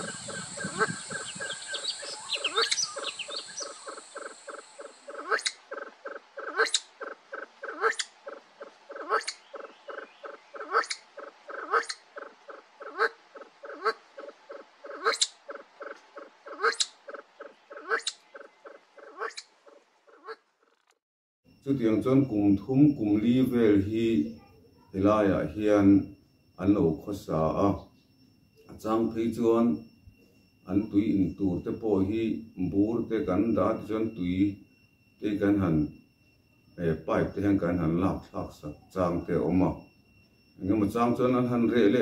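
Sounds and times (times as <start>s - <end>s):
pheasants clucking: 0.0s - 20.8s
sharp pheasant call: 0.0s - 20.8s.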